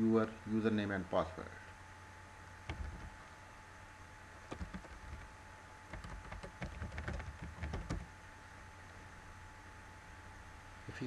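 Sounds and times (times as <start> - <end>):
keyboard typing: 2.7 - 3.2, 4.5 - 8.1.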